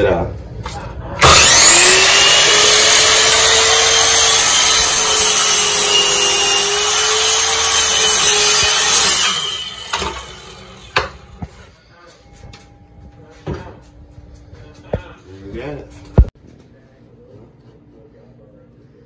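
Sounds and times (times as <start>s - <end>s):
miter saw cutting wood: 1.2s - 11.4s.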